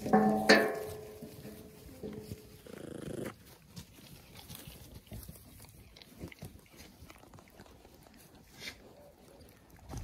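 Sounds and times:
low animal grunt: 2.6 - 3.4.

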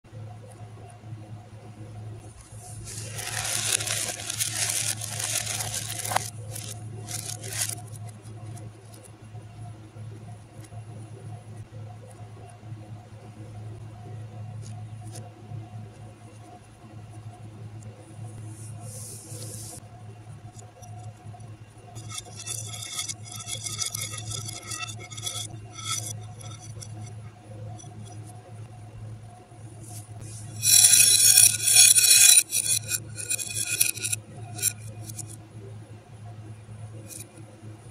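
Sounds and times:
plastic beads rattling on plate: 2.8 - 7.9, 22.0 - 27.1, 30.4 - 35.4.

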